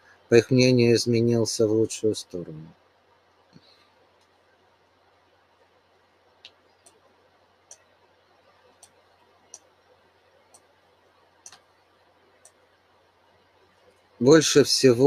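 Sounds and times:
faint sharp clicks: 0:06.4 - 0:07.1, 0:11.4 - 0:11.8.

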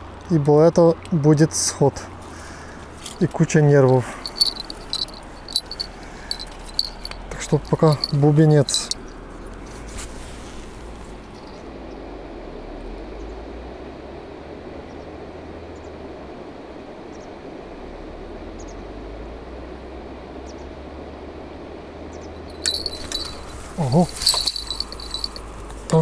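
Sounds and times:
low outdoor rumble: 0:01.6 - 0:14.6, 0:21.2 - 0:26.0
fishing rod bite bell jingling: 0:03.0 - 0:09.0, 0:11.3 - 0:11.6, 0:22.5 - 0:26.0.

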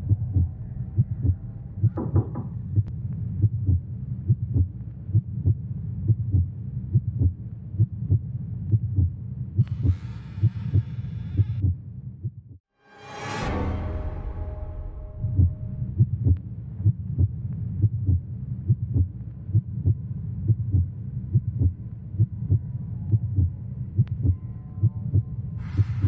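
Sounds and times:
low steady hum: 0:00.0 - 0:09.1
heartbeat thumping: 0:00.0 - 0:09.7, 0:15.4 - 0:26.0.

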